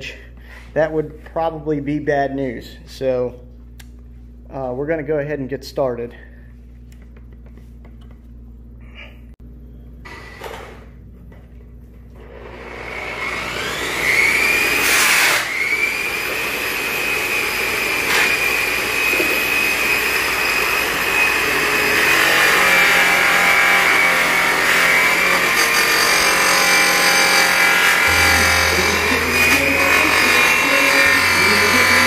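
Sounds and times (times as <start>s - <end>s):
power polisher motor whine: 12.2s - 32.0s.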